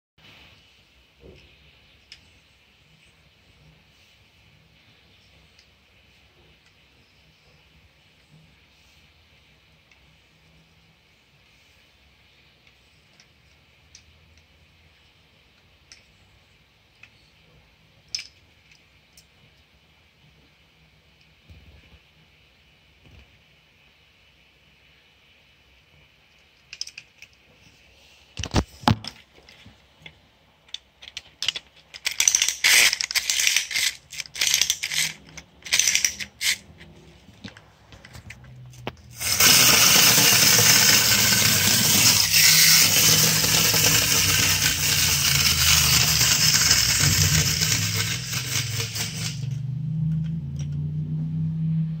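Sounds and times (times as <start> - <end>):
metallic clicks and rattles: 26.4 - 27.4, 30.7 - 36.6
clockwork motor whirring: 39.2 - 49.6.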